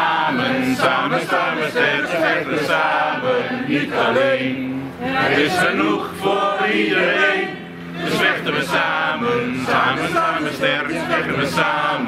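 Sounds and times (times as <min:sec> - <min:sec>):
crowd chanting: 0:00.0 - 0:12.0.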